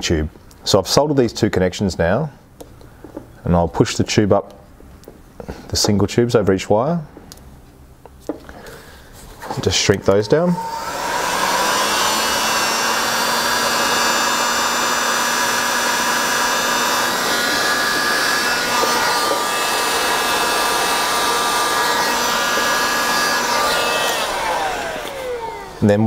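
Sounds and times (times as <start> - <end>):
heat gun blowing air: 10.4 - 26.0.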